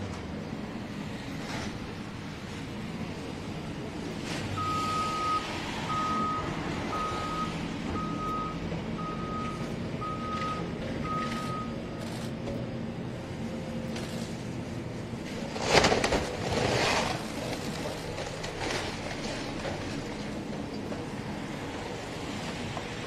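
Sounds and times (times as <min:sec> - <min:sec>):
vehicle backup alarm beeping: 0:04.6 - 0:12.1.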